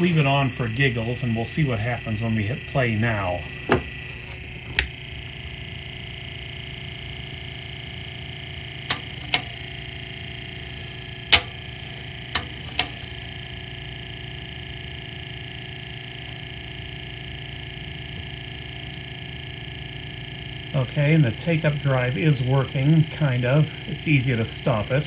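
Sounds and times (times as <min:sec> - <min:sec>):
motor droning: 0:00.0 - 0:25.0
sharp mechanism clicks: 0:08.9 - 0:09.6, 0:11.3 - 0:11.7, 0:12.3 - 0:13.1.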